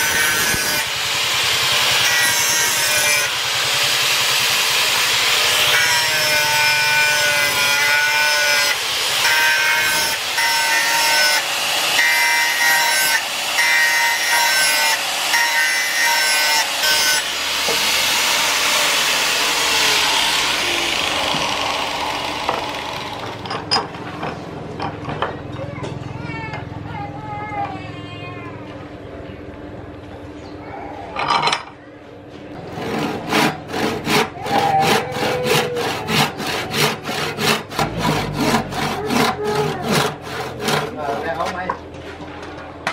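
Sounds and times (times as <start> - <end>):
angle grinder grinding steel: 0.0 - 23.6, 32.6 - 41.7
grinder motor whine: 0.0 - 23.6.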